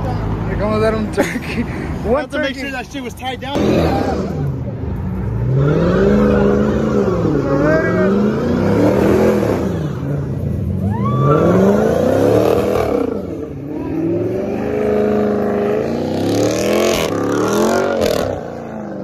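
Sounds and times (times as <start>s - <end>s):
car engine revving hard: 3.5s - 4.5s, 5.3s - 10.3s, 11.2s - 19.0s.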